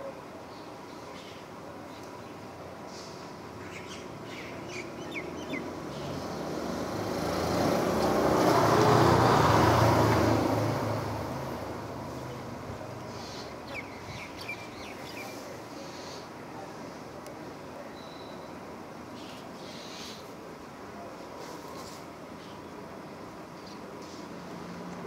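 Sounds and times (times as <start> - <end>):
birds chirping: 3.5 - 6.5, 13.0 - 16.3
vehicle passing by: 4.9 - 13.1.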